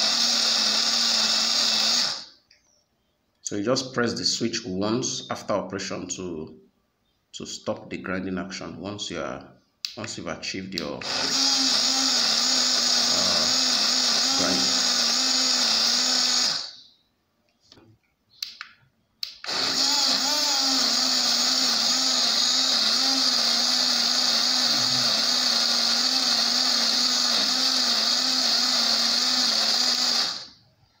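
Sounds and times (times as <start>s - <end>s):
portable blender running: 0.0s - 2.3s, 11.0s - 16.8s, 19.3s - 30.6s.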